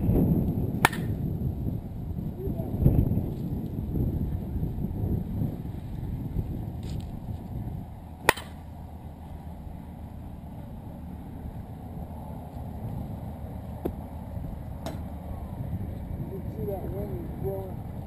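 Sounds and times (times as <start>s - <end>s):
steady low rumble: 0.0s - 18.0s
bat cracking a softball: 0.7s - 1.3s, 8.2s - 8.7s.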